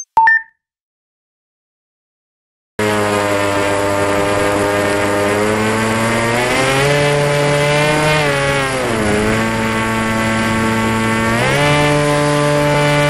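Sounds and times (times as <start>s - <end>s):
electric model airplane motor whine: 2.8s - 13.0s.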